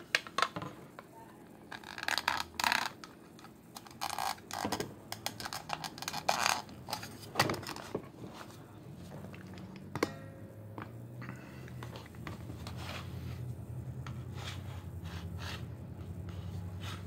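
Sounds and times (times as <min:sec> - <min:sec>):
plastic figure clicking and scraping: 0:01.6 - 0:08.1.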